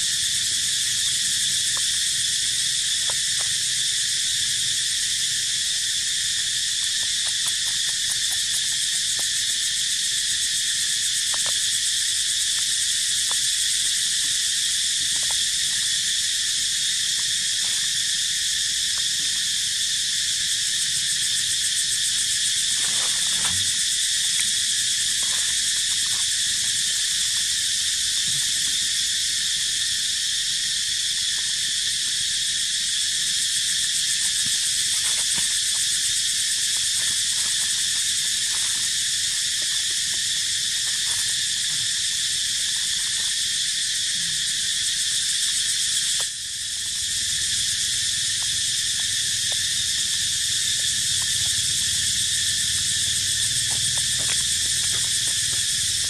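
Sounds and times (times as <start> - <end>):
insects droning: 0.0 - 56.0.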